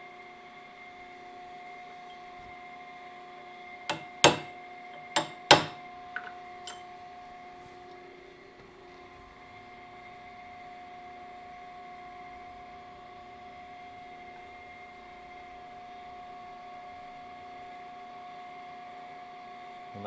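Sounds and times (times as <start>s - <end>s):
hammer strikes on metal: 3.9s - 6.8s
steady hum: 3.9s - 17.6s.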